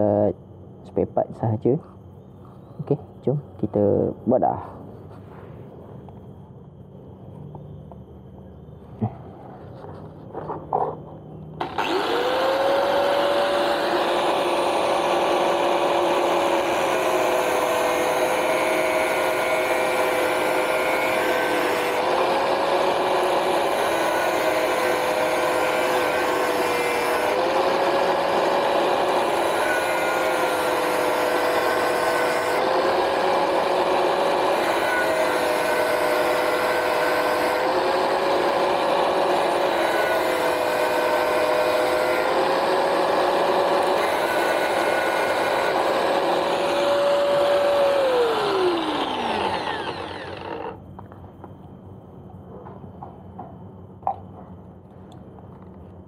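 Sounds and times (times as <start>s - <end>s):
angle grinder motor whine: 11.3s - 51.1s
metal grinding: 11.6s - 50.8s.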